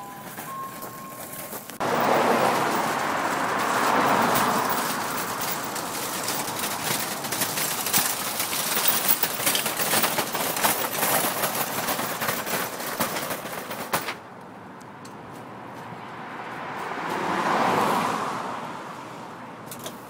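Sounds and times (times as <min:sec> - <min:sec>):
shopping cart rattling on pavement: 0:00.0 - 0:14.3.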